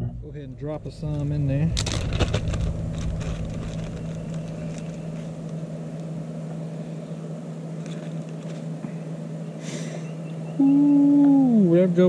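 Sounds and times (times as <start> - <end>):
propane burner humming: 0.0 - 12.0
faint rustles: 0.8 - 9.2.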